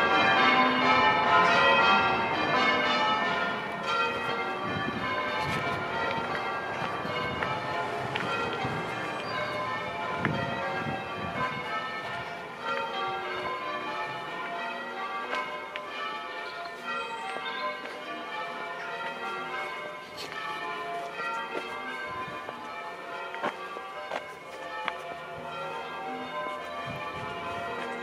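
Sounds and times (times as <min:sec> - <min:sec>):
church bells ringing: 0:00.0 - 0:28.0.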